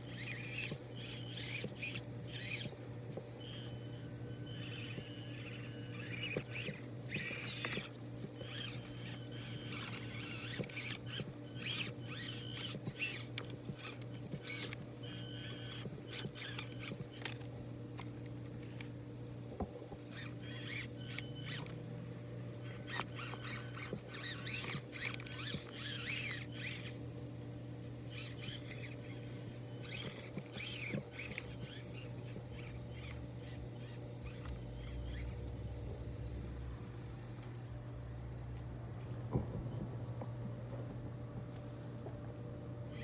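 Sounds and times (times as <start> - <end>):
small electric motor whining: 0.0 - 41.8, 42.7 - 43.0
low hum: 0.0 - 43.0.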